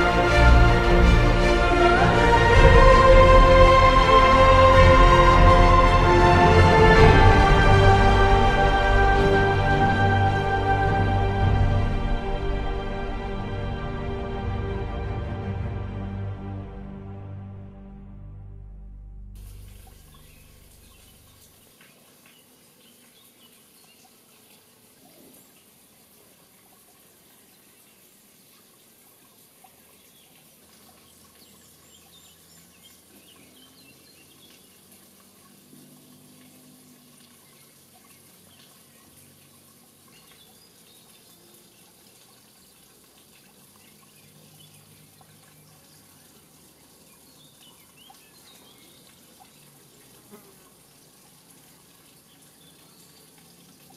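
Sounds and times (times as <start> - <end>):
steady hiss: 19.4 - 31.5.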